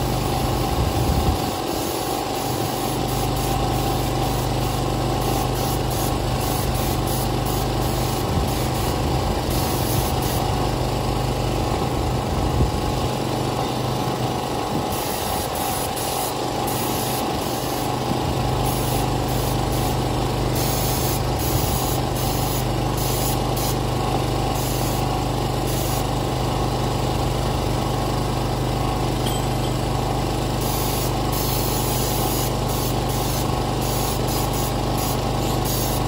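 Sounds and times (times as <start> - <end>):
spray gun hissing: 1.4 - 10.6, 14.9 - 23.8, 24.5 - 26.0, 29.8 - 36.0
portable generator running: 26.2 - 33.8.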